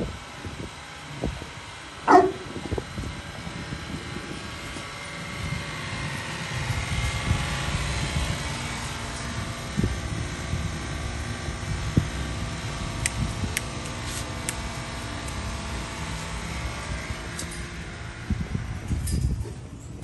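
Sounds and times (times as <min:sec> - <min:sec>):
dog barking: 0:02.1 - 0:02.5.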